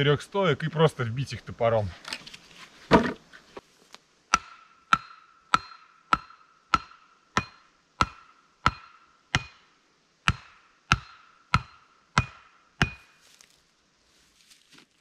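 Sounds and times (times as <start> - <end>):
axe striking wooden post: 2.9 - 3.2, 4.3 - 9.6, 10.3 - 13.2.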